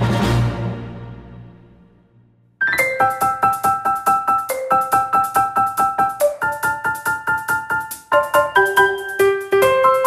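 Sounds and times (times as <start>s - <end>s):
keyboard repeated chords: 2.6s - 10.0s.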